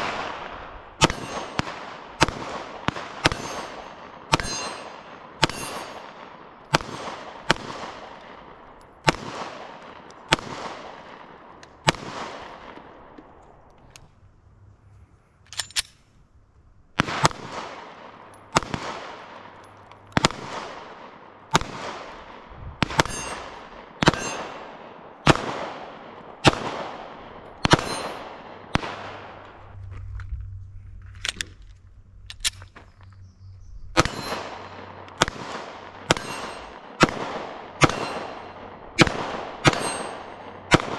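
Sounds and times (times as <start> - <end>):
pistol shots with echo: 0.0 - 13.1, 17.0 - 29.5, 34.0 - 40.9.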